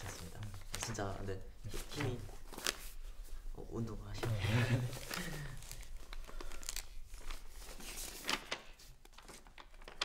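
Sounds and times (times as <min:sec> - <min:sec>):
paper rustling and crinkling: 0:00.0 - 0:03.4, 0:04.2 - 0:10.0.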